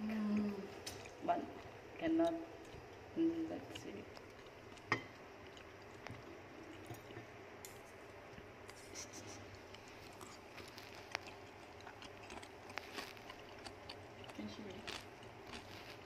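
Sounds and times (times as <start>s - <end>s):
rodent scratching: 8.7s - 16.0s.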